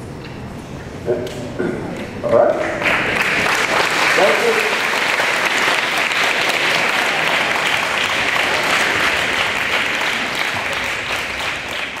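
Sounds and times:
audience applauding: 0:02.7 - 0:12.0.

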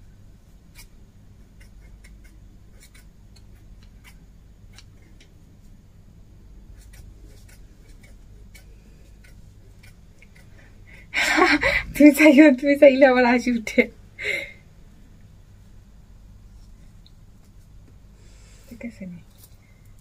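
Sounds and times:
low steady hum: 0:00.0 - 0:20.0
scissors snipping hair: 0:01.6 - 0:04.9, 0:06.8 - 0:10.5.

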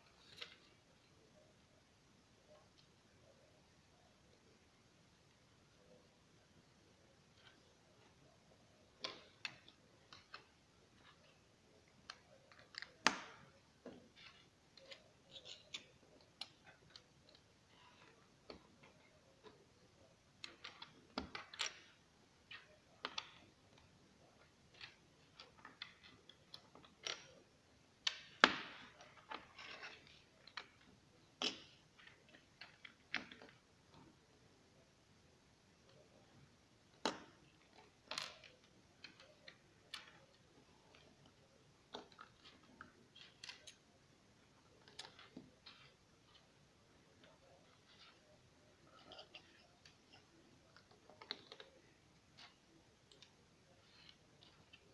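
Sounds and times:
plastic bricks clicking and snapping: 0:36.9 - 0:43.8.

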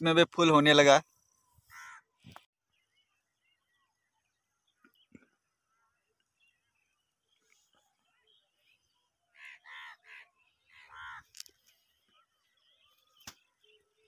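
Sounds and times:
crow cawing: 0:01.7 - 0:02.1, 0:09.3 - 0:11.5.

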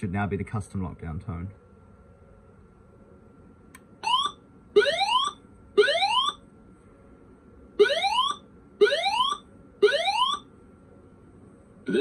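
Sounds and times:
alarm tones rising in pitch: 0:04.0 - 0:06.4, 0:07.8 - 0:10.5.

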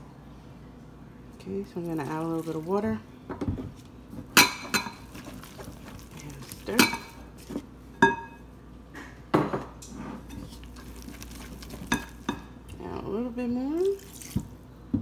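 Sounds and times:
whisk clinking in glass bowl: 0:10.3 - 0:12.4.

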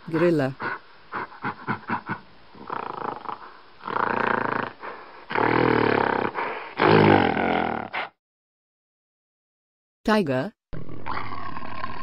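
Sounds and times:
gorilla rough loud calls: 0:01.2 - 0:08.1.

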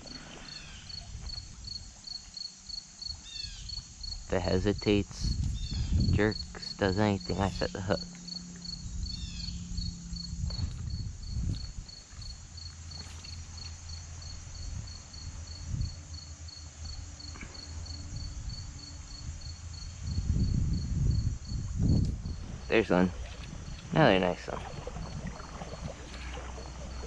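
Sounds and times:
cricket chirping: 0:00.0 - 0:27.0
wind on microphone: 0:04.1 - 0:08.0, 0:08.8 - 0:12.4, 0:14.6 - 0:16.0, 0:18.1 - 0:27.0
low rumble: 0:04.2 - 0:12.8.

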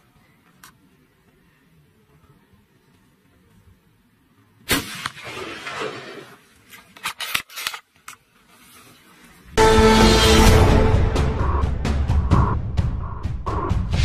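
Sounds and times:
rifle gunshot: 0:04.7 - 0:06.2.

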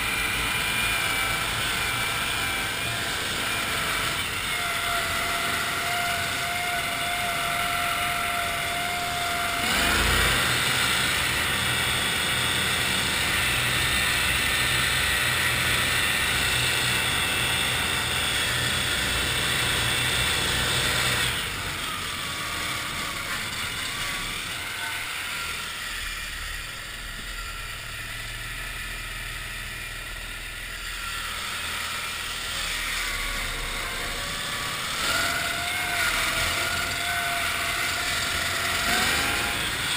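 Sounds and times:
tracked vehicle engine running: 0:00.0 - 0:39.9.

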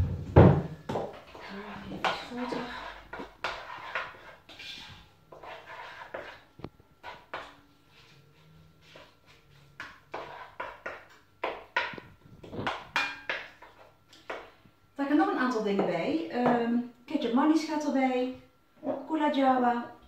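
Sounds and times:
spoon scraping a pan: 0:00.9 - 0:14.6.

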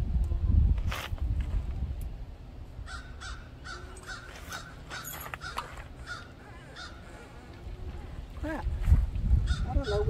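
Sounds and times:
crows cawing: 0:02.9 - 0:07.4, 0:09.4 - 0:10.0.

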